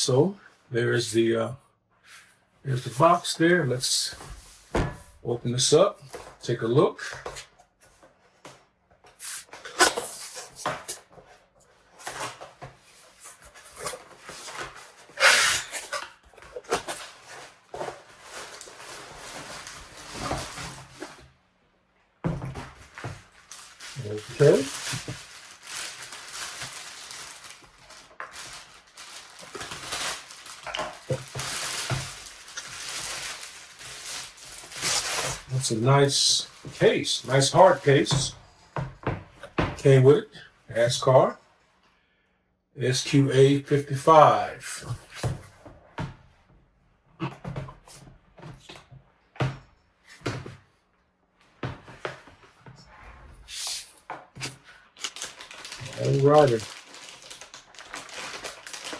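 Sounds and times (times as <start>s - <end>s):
plastic bag crinkling: 15.4s - 21.2s, 22.8s - 38.2s, 54.4s - 58.9s.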